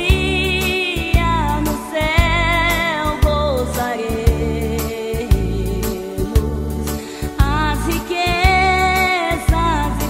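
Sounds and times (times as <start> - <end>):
bass line: 0.0 - 10.0
woman singing with vibrato: 0.0 - 10.0.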